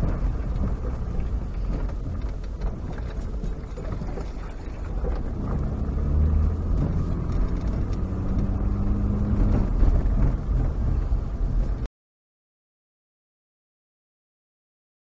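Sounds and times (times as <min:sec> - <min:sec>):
low engine drone: 0:00.0 - 0:11.9
tyre and road rumble: 0:00.0 - 0:11.9.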